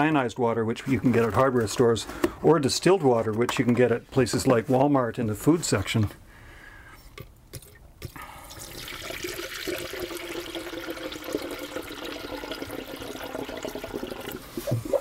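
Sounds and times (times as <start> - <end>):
water pouring into funnel: 8.4 - 15.0.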